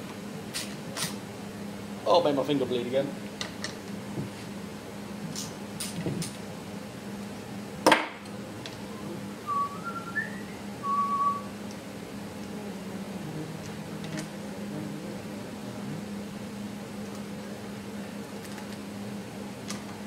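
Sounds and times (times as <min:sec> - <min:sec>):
steady low hum: 0:00.0 - 0:20.0
person whistling: 0:08.9 - 0:11.5.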